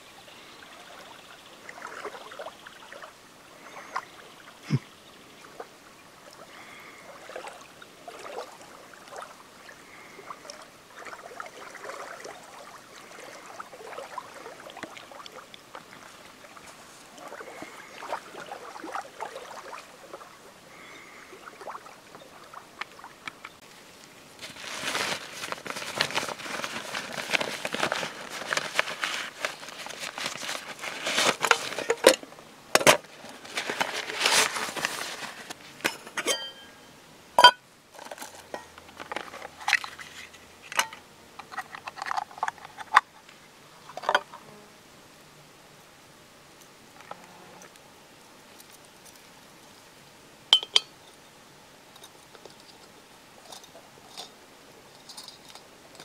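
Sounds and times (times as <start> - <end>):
nylon sack rustling: 24.4 - 32.2, 33.1 - 35.6
metal pots clinking: 31.4 - 32.2, 35.8 - 36.8, 37.4 - 39.9, 50.5 - 51.2.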